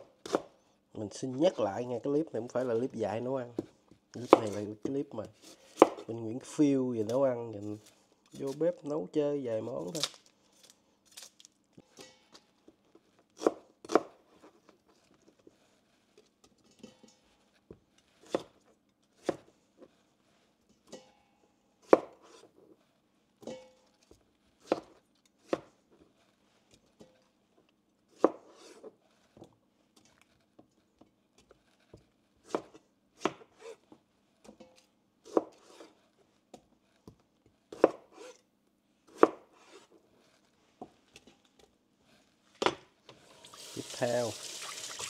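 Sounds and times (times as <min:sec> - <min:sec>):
knife chopping on cutting board: 0:00.0 - 0:00.5, 0:03.6 - 0:04.6, 0:05.2 - 0:06.1, 0:13.4 - 0:14.2, 0:18.2 - 0:18.6, 0:19.2 - 0:19.5, 0:21.8 - 0:22.4, 0:24.6 - 0:25.7, 0:28.1 - 0:28.8, 0:32.4 - 0:33.8, 0:35.2 - 0:35.9, 0:37.7 - 0:38.4, 0:39.1 - 0:39.8.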